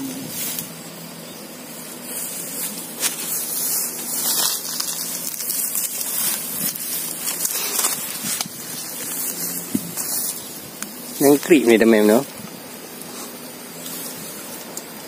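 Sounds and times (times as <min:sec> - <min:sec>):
footsteps through dry grass: 0:00.1 - 0:00.8, 0:01.7 - 0:12.4
stalks snapping: 0:03.0 - 0:11.0, 0:14.6 - 0:15.0.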